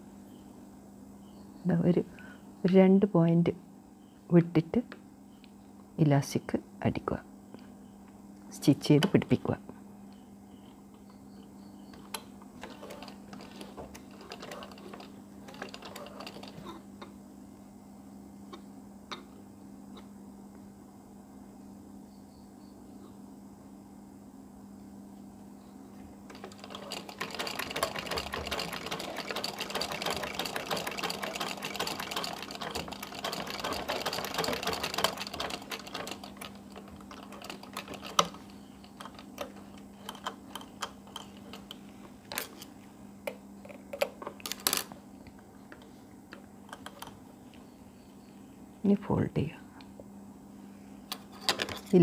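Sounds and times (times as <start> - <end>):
sewing machine needle clatter: 12.0 - 16.8, 26.3 - 42.5
clicks and knocks of handling: 37.0 - 47.2, 51.1 - 52.0.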